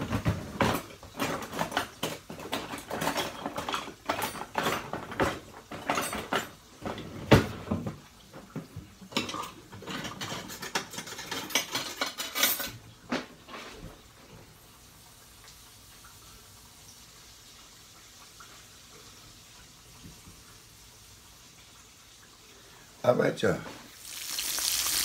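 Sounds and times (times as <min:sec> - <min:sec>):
utensils and dishes clattering: 0:00.0 - 0:13.9.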